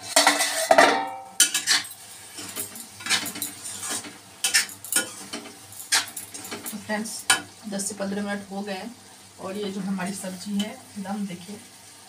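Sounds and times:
metal spatula scraping a pan: 0.0s - 7.4s.

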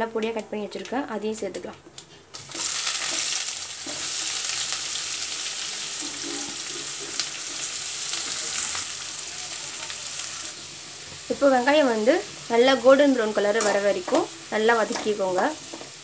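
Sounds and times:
onions sizzling in hot oil: 2.3s - 16.0s.

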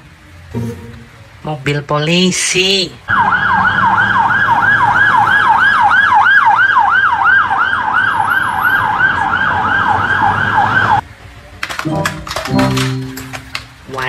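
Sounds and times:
low traffic rumble: 0.0s - 14.0s
police siren yelping: 3.1s - 11.0s.

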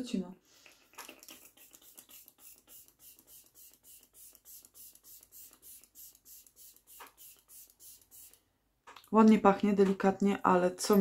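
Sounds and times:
spray atomizer hissing puffs: 0.6s - 8.5s.

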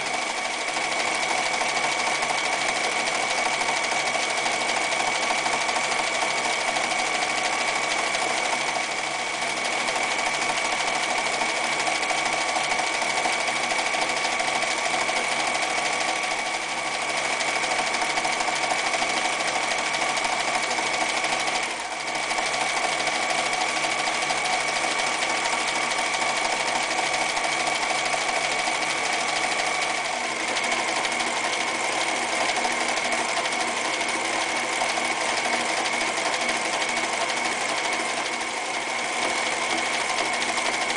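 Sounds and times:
sewing machine stitching: 0.0s - 40.9s.

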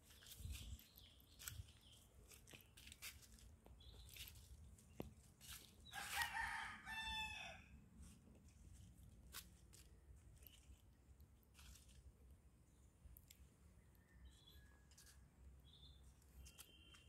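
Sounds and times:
rooster crowing: 5.9s - 7.7s.

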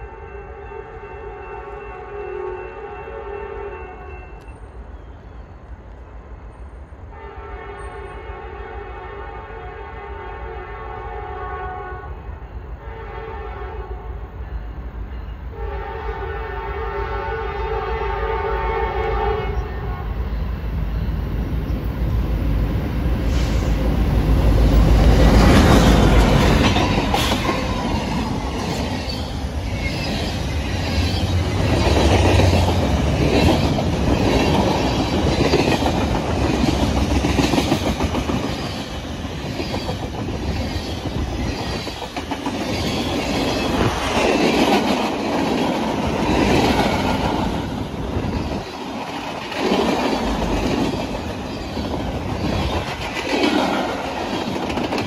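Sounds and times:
train horn chord: 0.0s - 4.4s, 7.1s - 12.2s, 12.8s - 14.2s, 15.5s - 20.2s
diesel locomotives rumbling past: 0.0s - 55.0s.

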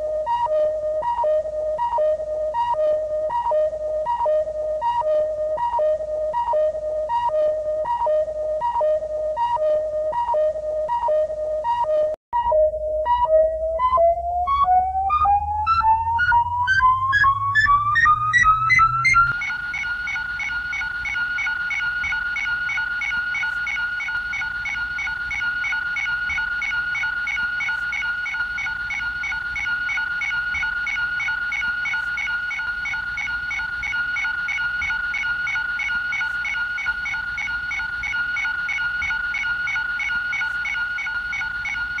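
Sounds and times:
rapid pulsing beep: 0.0s - 42.0s
steady high electronic tone: 2.4s - 42.0s.

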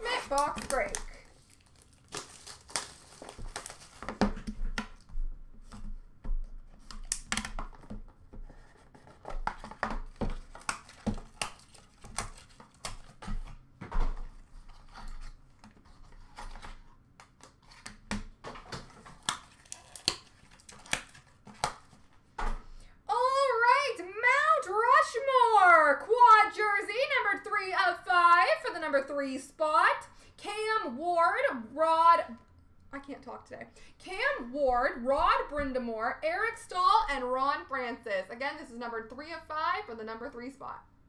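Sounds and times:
plastic wrap tearing and crinkling: 0.0s - 4.6s, 8.6s - 13.6s, 18.8s - 22.0s.

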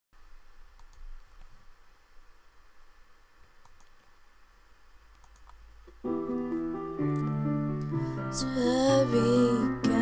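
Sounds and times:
low steady hum: 0.2s - 10.0s.

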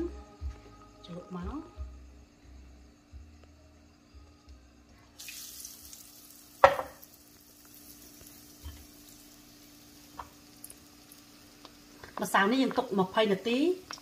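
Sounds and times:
hot oil sizzling: 5.2s - 14.0s.

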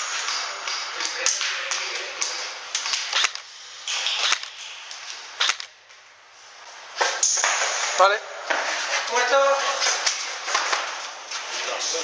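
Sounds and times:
airsoft gun shots: 5.4s - 5.8s.

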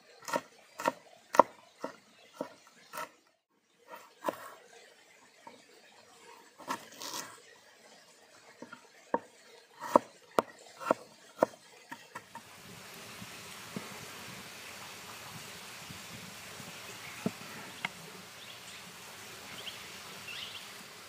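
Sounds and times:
steady hiss: 12.4s - 21.0s.

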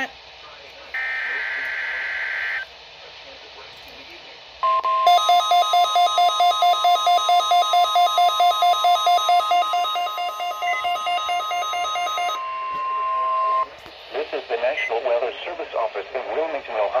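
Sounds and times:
steady radio alert tone: 0.9s - 2.7s, 4.6s - 16.6s
rapid alarm beeping: 1.0s - 2.7s, 4.6s - 13.7s.

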